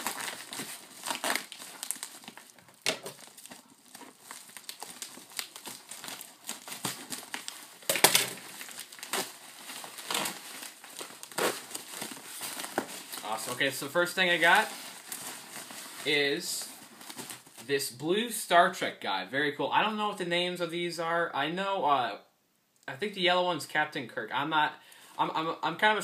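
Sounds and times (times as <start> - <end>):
padded mailer crinkling: 0.0 - 16.1.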